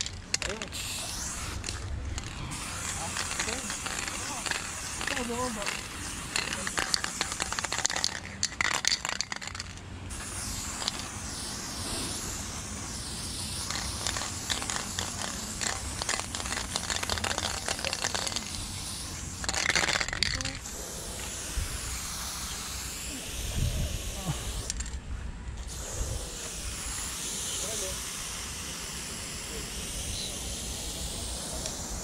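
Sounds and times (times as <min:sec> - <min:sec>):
spray can rattling clicks: 0:00.0 - 0:11.6, 0:13.3 - 0:20.6, 0:24.6 - 0:25.0, 0:31.2 - 0:32.0
spray paint can hissing: 0:00.0 - 0:32.0.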